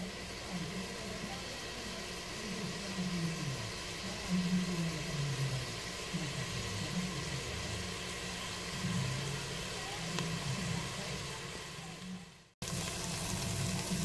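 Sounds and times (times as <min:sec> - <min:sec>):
food sizzling in a pot: 0:00.0 - 0:14.0.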